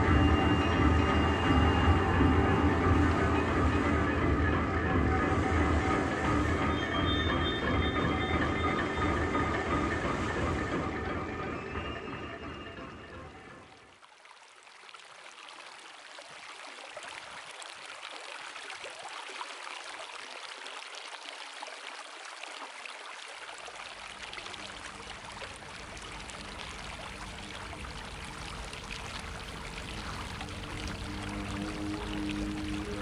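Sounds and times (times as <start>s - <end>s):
low music: 0.0s - 13.8s, 24.7s - 33.0s.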